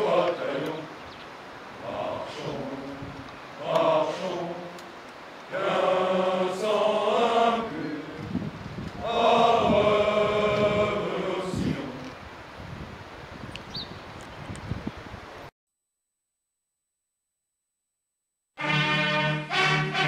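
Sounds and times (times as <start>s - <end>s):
soldiers singing in unison: 0.0s - 1.1s, 1.8s - 12.2s.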